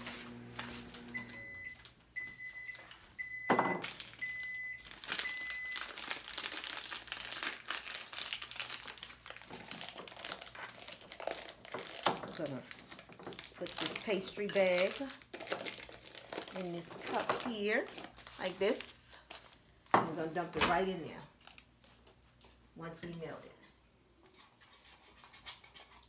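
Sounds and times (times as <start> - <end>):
microwave humming: 0.0 - 5.7
microwave beeps: 1.0 - 5.9
rustling and handling noises: 3.8 - 22.7.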